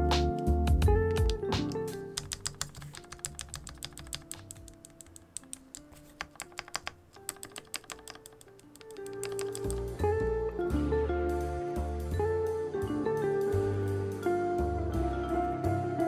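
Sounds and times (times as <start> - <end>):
background music: 0.0 - 16.0
keyboard keys clacking: 0.8 - 10.0.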